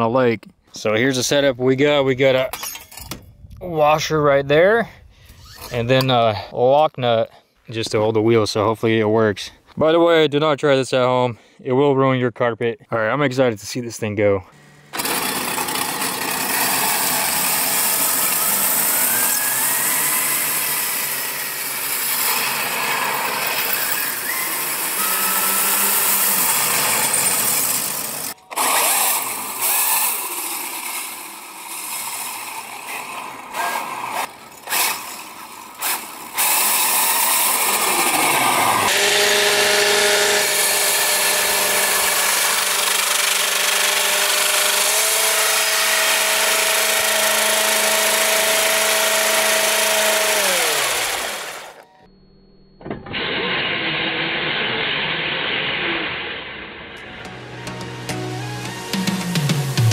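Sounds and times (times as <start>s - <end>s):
high motor whine: 14.6s - 59.9s
saw blades grinding on ice: 15.0s - 51.8s.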